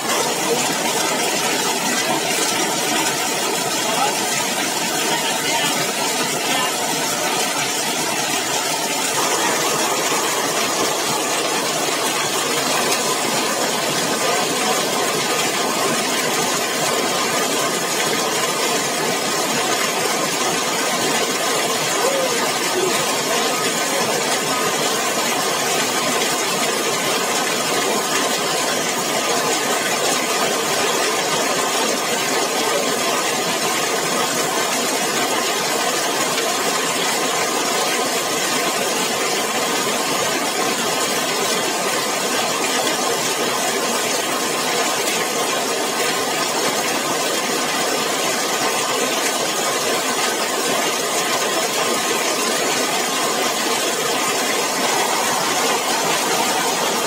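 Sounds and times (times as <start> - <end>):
heavy rain on a metal roof: 0.0 - 57.0.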